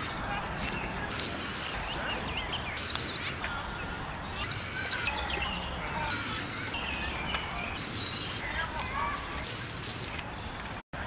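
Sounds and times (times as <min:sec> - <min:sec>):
steady hiss: 0:00.0 - 0:06.8
high bird chirps: 0:00.0 - 0:09.7.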